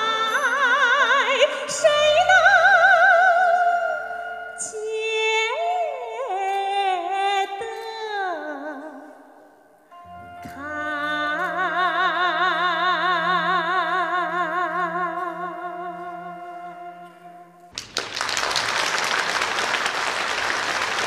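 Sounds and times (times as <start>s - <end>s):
audience applause: 17.7s - 21.0s.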